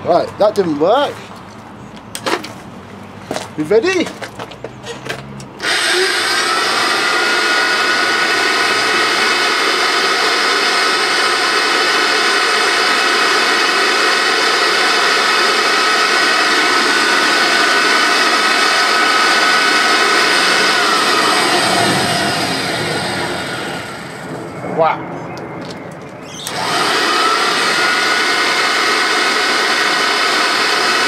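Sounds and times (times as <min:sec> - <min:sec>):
vacuum cleaner motor whine: 0:05.6 - 0:24.5, 0:26.2 - 0:31.0
vacuum cleaner winding down: 0:05.6 - 0:24.5, 0:26.3 - 0:31.0.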